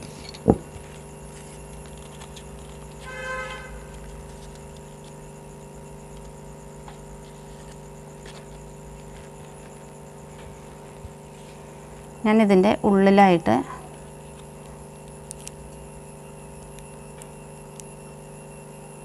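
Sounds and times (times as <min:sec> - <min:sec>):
steady electrical hum: 0:00.0 - 0:19.0
paper taps and rustles: 0:06.2 - 0:11.6.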